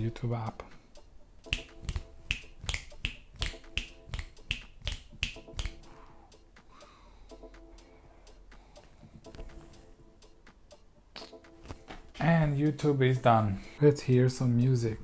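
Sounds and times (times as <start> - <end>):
fingers snapping: 1.5 - 5.8.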